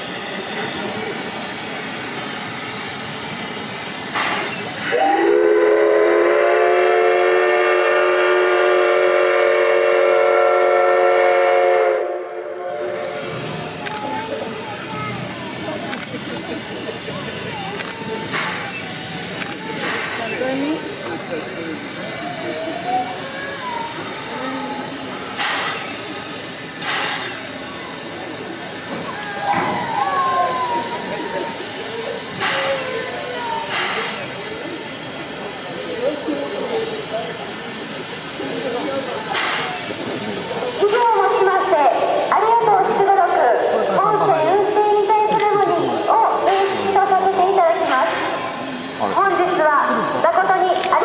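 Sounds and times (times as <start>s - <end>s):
steam venting hiss: 0.0s - 51.0s
steam whistle blast: 4.8s - 13.3s.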